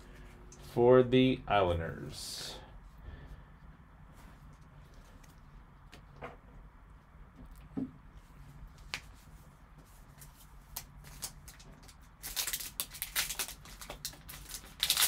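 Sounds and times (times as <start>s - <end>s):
foil wrapper crinkling: 10.7s - 15.0s.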